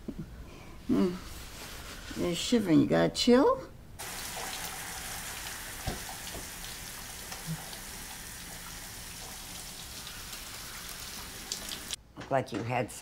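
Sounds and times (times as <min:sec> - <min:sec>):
shower spray running: 0:04.0 - 0:12.0.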